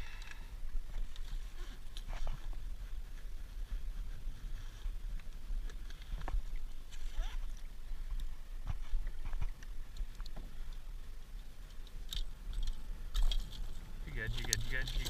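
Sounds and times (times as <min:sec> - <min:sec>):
steady low rumble: 0:07.9 - 0:15.0.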